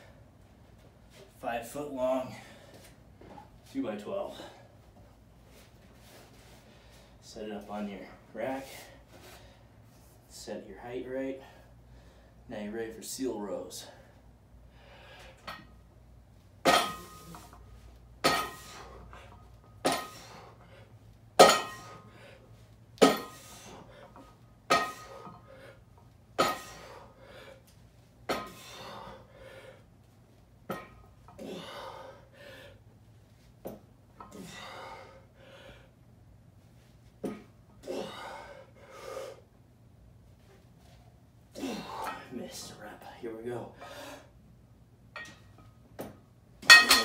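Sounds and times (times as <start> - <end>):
hard breathing: 13.8 - 15.7, 26.6 - 27.8, 28.4 - 30.0, 31.3 - 33.0, 34.2 - 36.0, 37.8 - 39.6
barbell plates clanking: 46.6 - 47.0.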